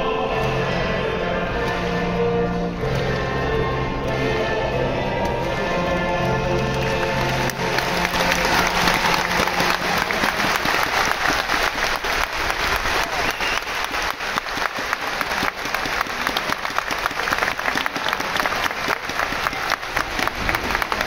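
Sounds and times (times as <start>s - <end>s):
crowd applauding: 5.4s - 21.0s.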